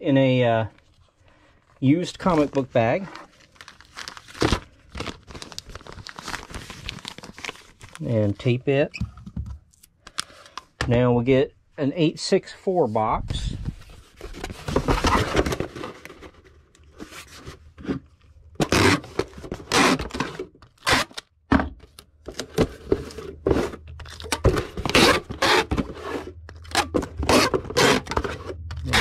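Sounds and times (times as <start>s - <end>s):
cardboard box scraping and creasing: 13.8s - 16.0s, 22.6s - 29.0s.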